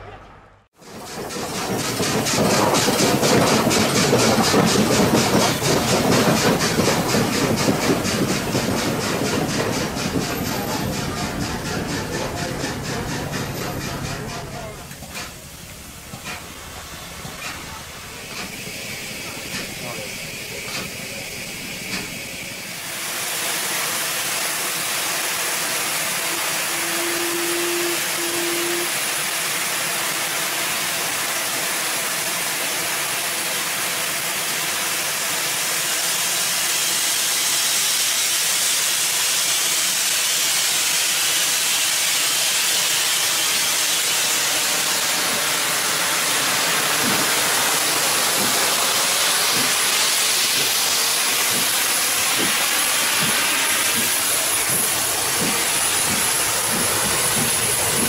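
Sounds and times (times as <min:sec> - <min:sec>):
brief low tone: 0:00.0 - 0:00.6
steam hissing: 0:00.8 - 0:58.0.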